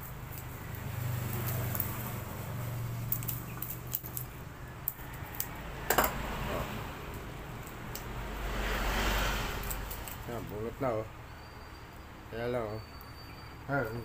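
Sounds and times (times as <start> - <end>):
metal coil winding scraping and rattling: 0.1 - 5.6.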